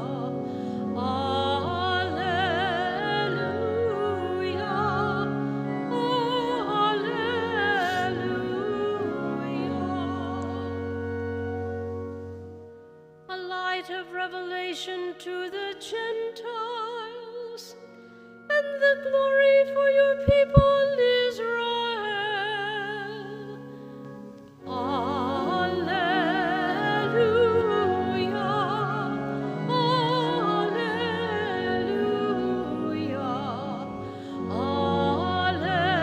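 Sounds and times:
person singing with vibrato: 0.0s - 11.4s, 18.5s - 23.8s, 24.6s - 36.0s
accompaniment holding long notes: 0.0s - 14.3s, 19.3s - 36.0s.

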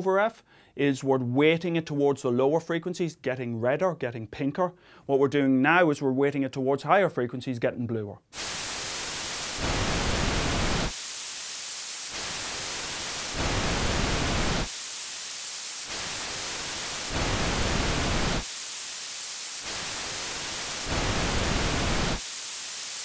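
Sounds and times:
high thin hiss: 8.4s - 23.0s
white noise bursts: 8.4s - 23.0s.

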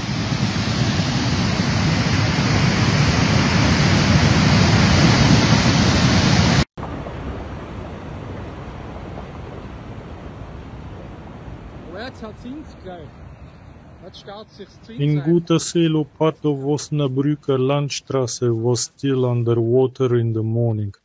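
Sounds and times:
torrent rushing loudly: 0.0s - 16.0s
distant rushing water: 0.0s - 19.6s.

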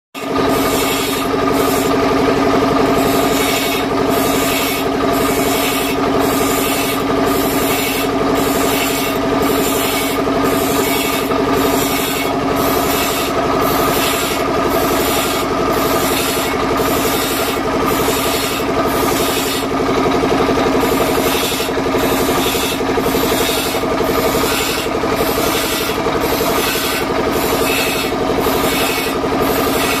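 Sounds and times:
grinding wheel rasping on saw blade: 0.2s - 30.0s
stationary engine running: 0.2s - 30.0s.

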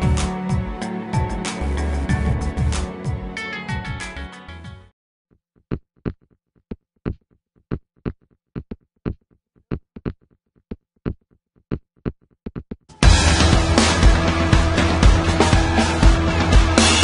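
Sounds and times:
electronic percussion beat: 0.0s - 4.3s, 12.9s - 17.0s.

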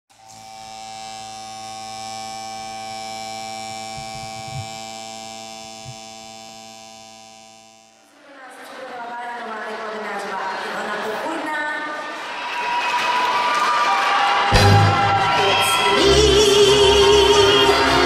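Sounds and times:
synthesized buzzing chord drone: 0.1s - 8.1s.

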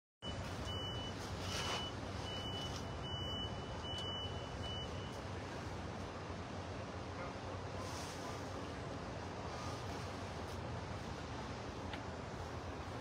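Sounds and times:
reversing alarm beeping: 0.2s - 5.4s.

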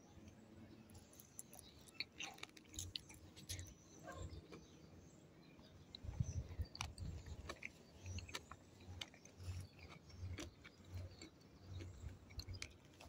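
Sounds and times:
person chewing soft fruit: 0.2s - 13.0s.

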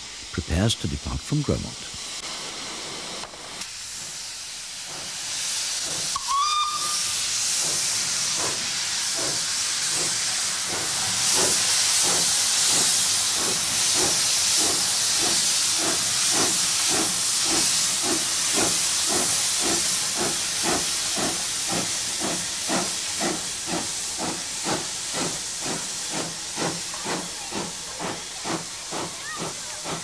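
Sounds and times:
steam locomotive hissing: 0.0s - 30.0s
steam whistle toot: 6.2s - 7.3s.

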